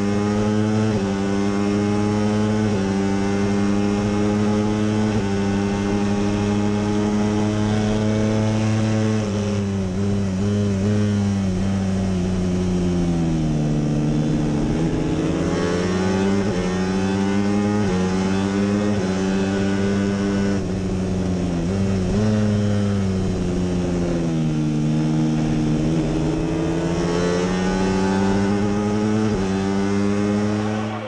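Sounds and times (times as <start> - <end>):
motorcycle engine at high revs: 0.0 - 31.0.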